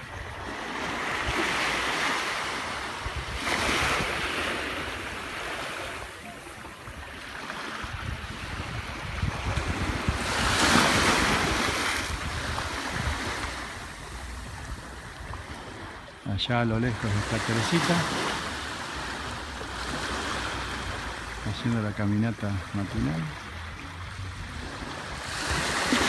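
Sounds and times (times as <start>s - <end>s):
small waves washing onto beach: 0.0s - 26.0s
wind buffeting microphone: 2.6s - 5.2s, 6.0s - 16.0s.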